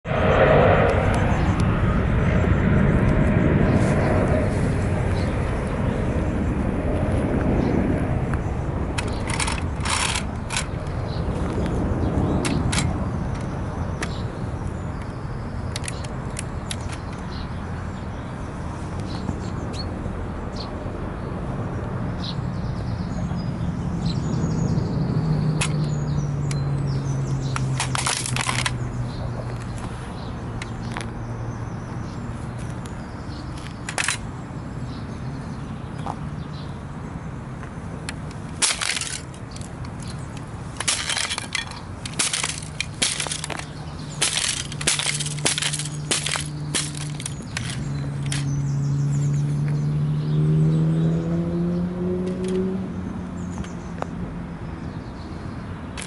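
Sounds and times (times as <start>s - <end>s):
toy car cracking and snapping: 9.0s - 10.8s, 27.7s - 28.8s, 38.5s - 39.8s, 40.8s - 48.5s.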